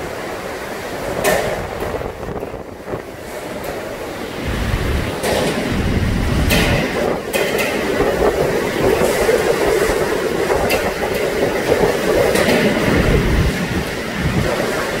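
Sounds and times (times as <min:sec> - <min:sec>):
howling wind with driven rain: 0:00.0 - 0:15.0
sharp knocks: 0:06.4 - 0:07.9.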